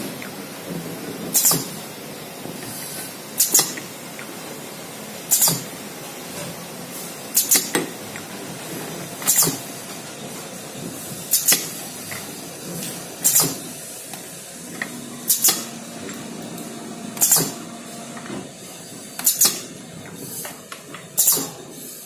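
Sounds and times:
pneumatic air hisses: 0:01.3 - 0:01.7, 0:02.7 - 0:03.8, 0:05.3 - 0:05.7, 0:07.0 - 0:07.7, 0:09.2 - 0:09.8, 0:11.3 - 0:11.8, 0:13.2 - 0:14.1, 0:15.3 - 0:15.7, 0:17.2 - 0:17.6, 0:19.2 - 0:20.6, 0:21.2 - 0:22.0
low machine hum: 0:14.5 - 0:18.6.

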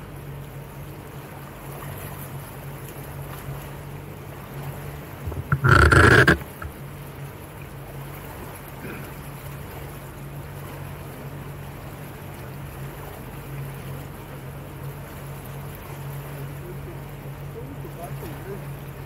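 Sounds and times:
water rushing along hull: 0:00.0 - 0:19.0
motorboat engine humming: 0:02.6 - 0:08.1.

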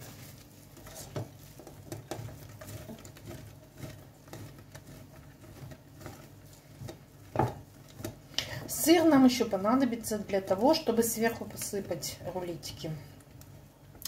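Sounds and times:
cheese scraping on a grater: 0:00.0 - 0:10.9.

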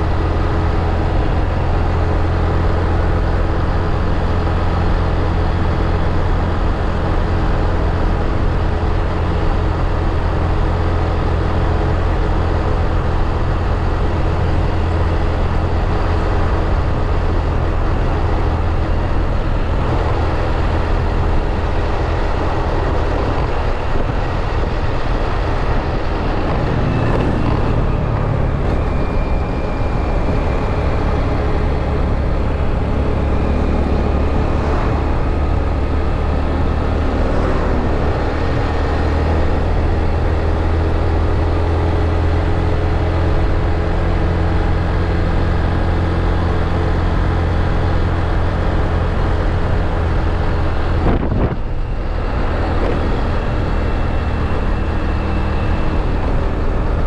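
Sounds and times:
wind on microphone: 0:16.8 - 0:41.2, 0:49.6 - 0:57.0.

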